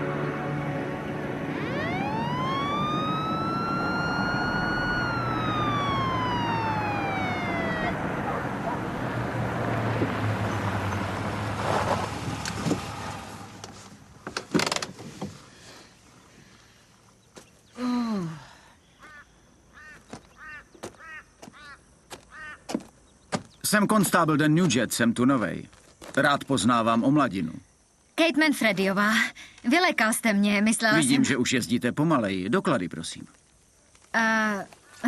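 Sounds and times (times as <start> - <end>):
car driving: 0.0 - 14.9
police siren wail: 0.8 - 9.8.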